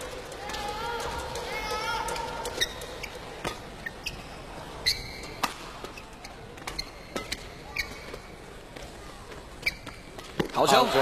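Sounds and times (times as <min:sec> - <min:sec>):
shoe squeaks on court floor: 0:02.6 - 0:08.4, 0:09.6 - 0:10.2
rackets striking shuttlecock: 0:05.2 - 0:08.9.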